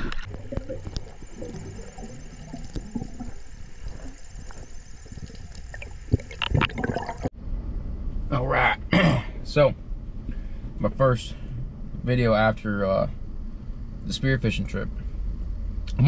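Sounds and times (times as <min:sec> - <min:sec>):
water sloshing and gurgling: 0:00.0 - 0:07.4.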